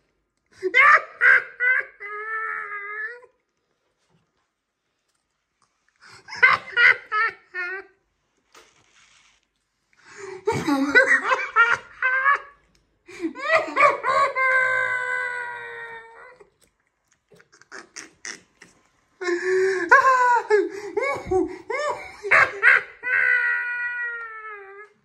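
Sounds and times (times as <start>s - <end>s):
woman laughing and wailing: 0.6s - 3.3s, 10.4s - 12.6s, 13.2s - 16.4s, 19.2s - 25.0s.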